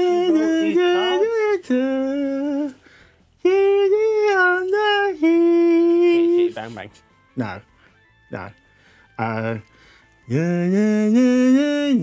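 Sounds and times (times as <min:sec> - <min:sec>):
man singing open vowels: 0:00.0 - 0:02.8, 0:03.4 - 0:06.6, 0:08.3 - 0:08.6, 0:09.2 - 0:09.7, 0:10.3 - 0:12.0.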